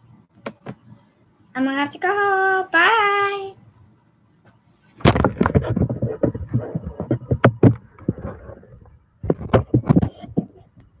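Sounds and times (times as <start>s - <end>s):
microphone handling knocks and rubs: 5.0s - 11.0s.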